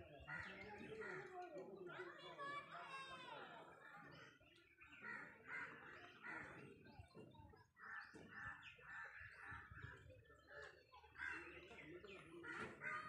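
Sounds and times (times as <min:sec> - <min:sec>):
birds calling faintly: 0:00.0 - 0:13.0.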